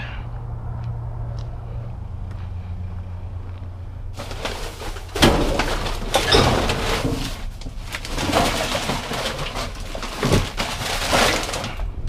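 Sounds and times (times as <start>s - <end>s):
trash bags rustling and crinkling: 4.2s - 12.0s.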